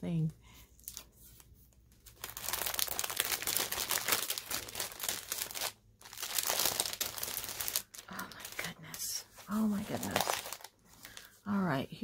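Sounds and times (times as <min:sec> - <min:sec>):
cellophane bag crinkling: 0:01.8 - 0:11.3.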